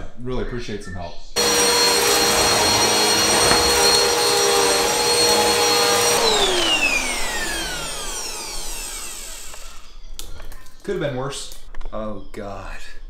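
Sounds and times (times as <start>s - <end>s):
vacuum cleaner motor whine: 1.4s - 9.9s
vacuum sucking up sugar: 1.4s - 9.9s.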